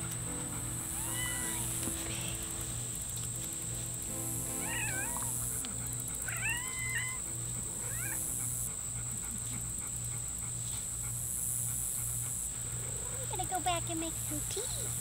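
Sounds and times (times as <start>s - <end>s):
cat meowing: 0.9s - 2.4s, 4.6s - 5.5s, 6.2s - 8.2s.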